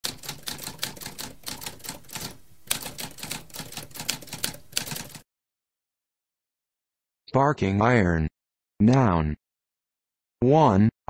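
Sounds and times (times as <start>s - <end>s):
typewriter key clacks: 0.0s - 5.2s.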